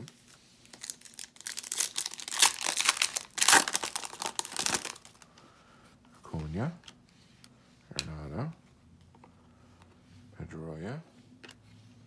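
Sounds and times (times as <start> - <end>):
foil wrapper tearing and crinkling: 0.7 - 5.2.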